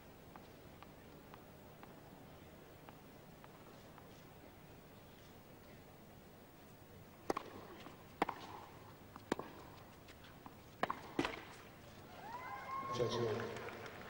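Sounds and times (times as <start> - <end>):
tennis ball struck by rackets: 7.2 - 10.2, 10.8 - 11.6
tennis ball bouncing on court: 7.2 - 11.6.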